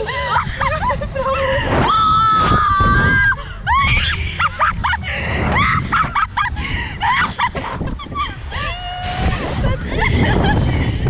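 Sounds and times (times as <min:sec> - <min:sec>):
laughter: 0:00.0 - 0:01.6, 0:03.8 - 0:11.0
women screaming: 0:00.0 - 0:04.6, 0:08.2 - 0:10.1.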